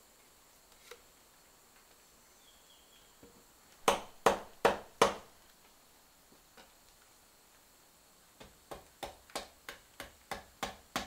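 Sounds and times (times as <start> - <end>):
sharp knocks: 3.8 - 5.3, 8.4 - 11.0.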